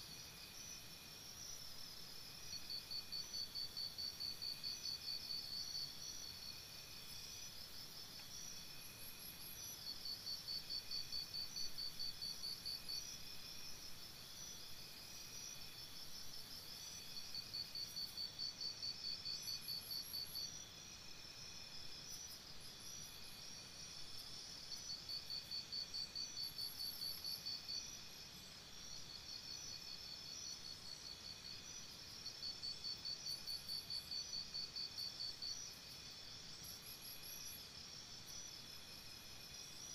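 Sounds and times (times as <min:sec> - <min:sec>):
crickets trilling: 0:00.1 - 0:39.9.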